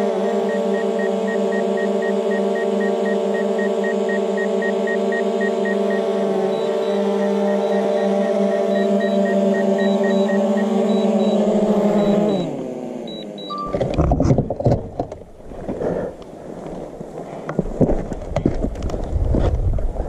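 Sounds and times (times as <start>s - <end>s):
drone propellers buzzing: 0.0s - 17.2s
short high beeps: 0.4s - 13.8s
knocks and rustling: 13.7s - 19.9s.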